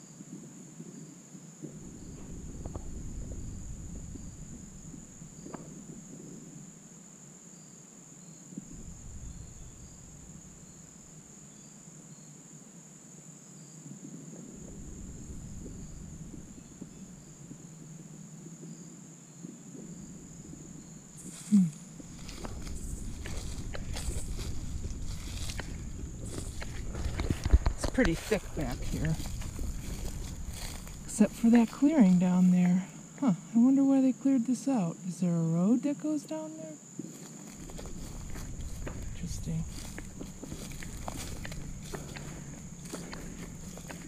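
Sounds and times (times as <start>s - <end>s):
crickets trilling: 0.0s - 44.0s
faint insect chirps: 0.0s - 44.0s
low rumble: 1.6s - 6.7s, 8.6s - 11.5s, 14.4s - 18.1s, 19.8s - 32.4s, 37.4s - 44.0s.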